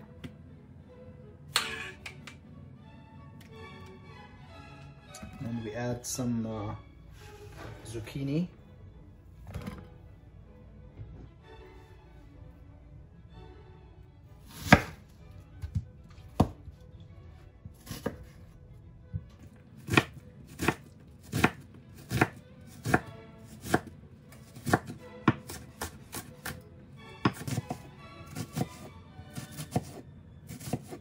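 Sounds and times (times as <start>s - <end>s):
knife chopping onion on wooden board: 14.5s - 15.0s, 16.4s - 16.6s, 17.7s - 18.4s, 19.8s - 26.6s, 27.2s - 31.0s.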